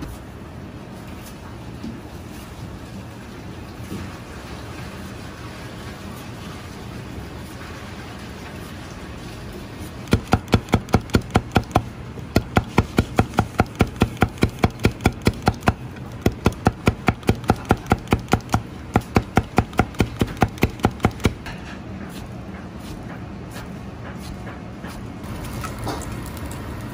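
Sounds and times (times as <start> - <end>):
cleaver chopping on cutting board: 10.1 - 25.0.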